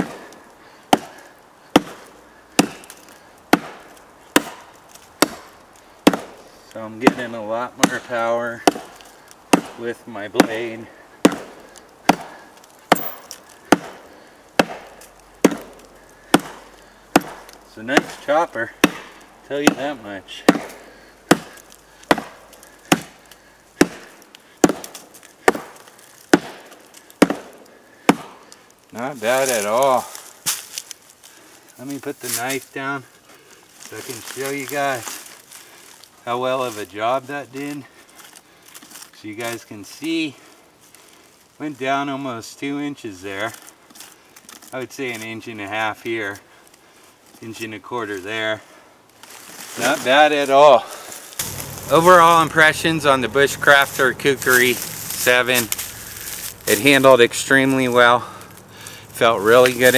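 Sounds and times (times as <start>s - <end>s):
blade chopping into log: 0.9s - 1.2s, 1.8s - 6.4s, 7.0s - 9.8s, 10.4s - 18.2s, 18.8s - 28.4s, 51.4s - 56.9s.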